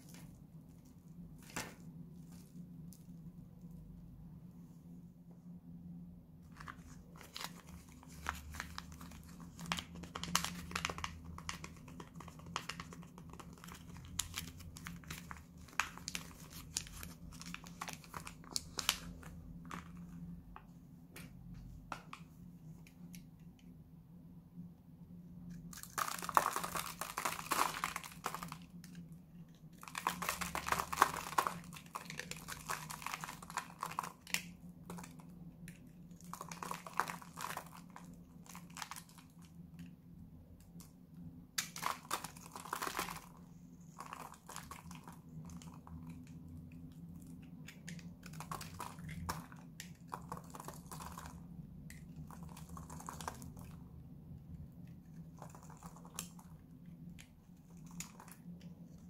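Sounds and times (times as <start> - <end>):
paper wrapper crinkling and tearing: 6.5 - 20.3, 25.6 - 39.6, 41.6 - 51.4, 55.0 - 56.7.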